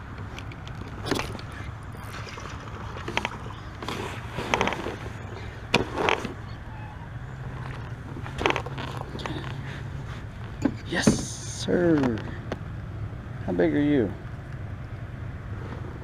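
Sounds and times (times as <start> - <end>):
knocks and rattles on kayak: 0.4 - 6.5.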